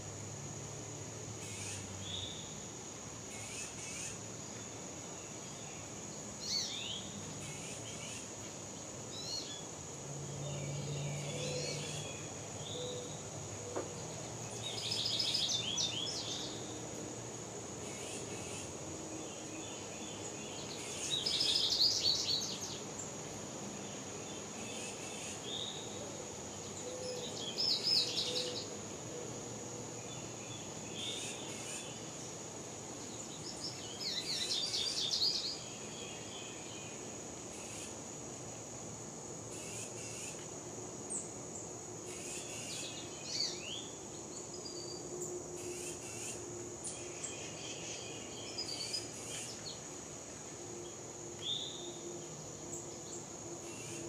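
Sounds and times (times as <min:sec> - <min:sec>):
songbird singing: 0:01.2 - 0:38.6, 0:39.5 - 0:54.0
high-pitched insect drone: 0:39.5 - 0:40.4, 0:45.0 - 0:49.8, 0:50.8 - 0:54.0.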